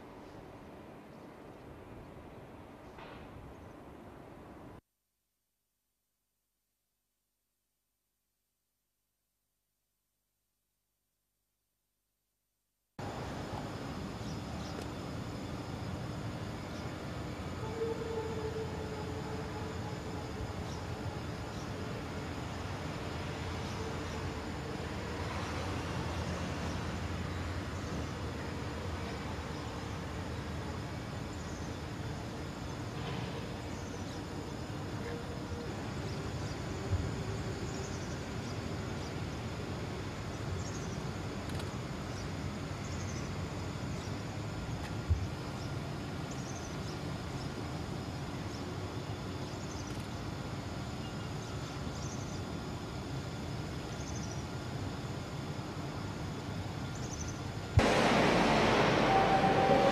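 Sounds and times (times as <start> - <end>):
machinery humming and hissing: 13.0 - 49.8, 50.4 - 59.9.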